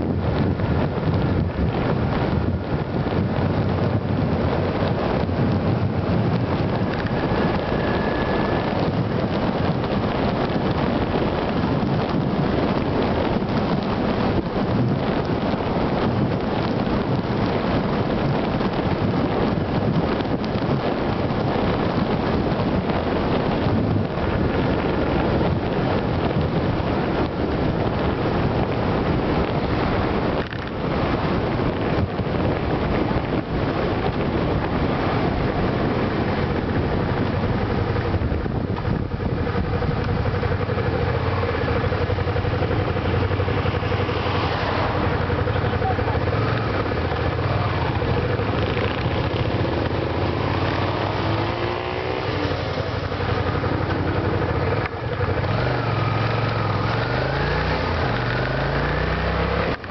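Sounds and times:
motorcycle engine running: 0.0 - 59.9
wind rushing over microphone: 0.0 - 59.9.

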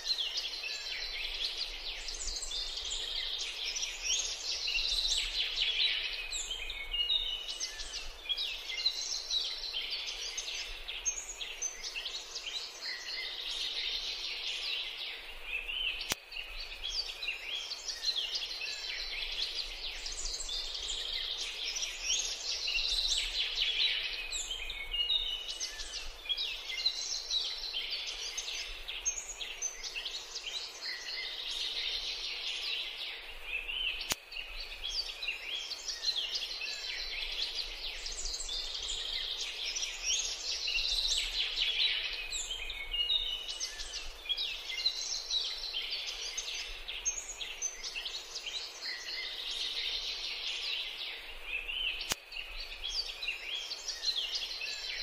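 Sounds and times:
songbirds chirping and twittering: 0.0 - 55.0.

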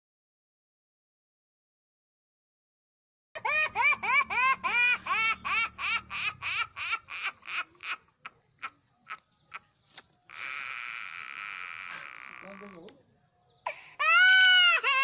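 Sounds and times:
high-pitched laughter: 3.4 - 12.6.

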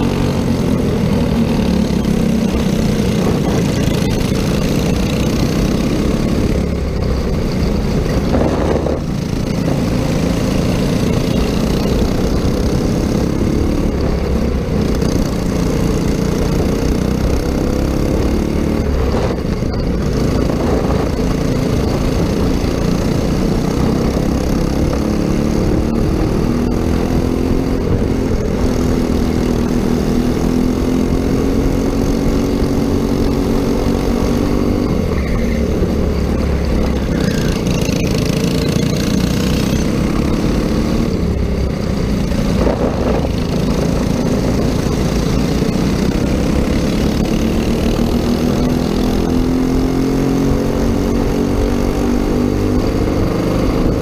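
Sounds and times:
kart engine racing: 0.0 - 54.0.

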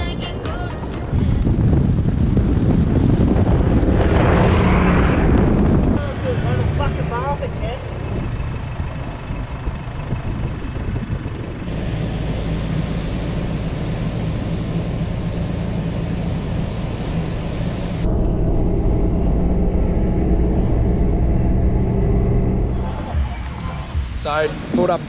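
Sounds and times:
car engine and tyres on sand: 0.0 - 18.4
steady engine drone: 0.0 - 25.0
wind rushing through open window: 1.1 - 7.2.

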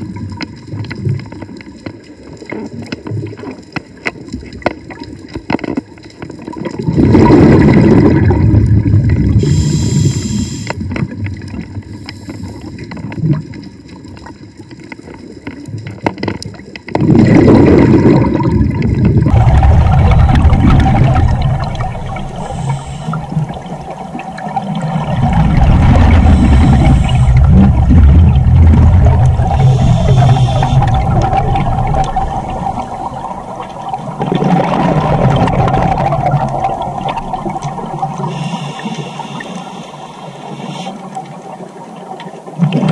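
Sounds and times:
gurgling exhaled bubbles: 6.4 - 13.6, 15.6 - 39.6, 40.7 - 42.9
diver breathing through regulator: 9.4 - 10.8, 22.2 - 23.7, 25.6 - 27.9, 29.4 - 31.4, 38.2 - 41.1.

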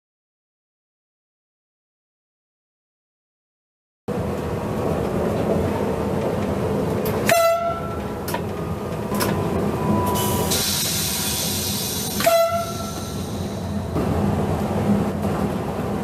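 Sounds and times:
train running noise: 4.1 - 16.0
train horn blasts: 7.2 - 8.0, 12.2 - 13.2.

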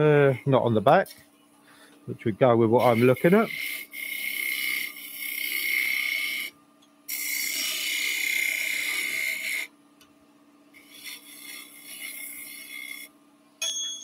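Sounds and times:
lathe tool scraping wood: 2.7 - 6.5, 7.1 - 9.7, 10.8 - 13.1.

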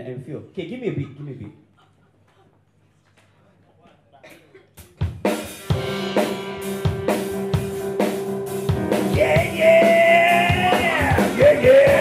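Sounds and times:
drum kit rock beat: 4.8 - 12.0.

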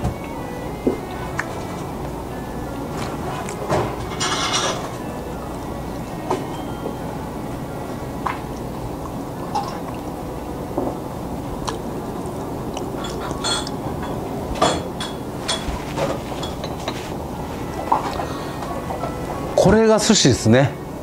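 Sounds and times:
restaurant background noise: 0.0 - 21.0
dishes and glassware clinking: 2.9 - 5.2, 9.5 - 9.9, 13.0 - 19.8.

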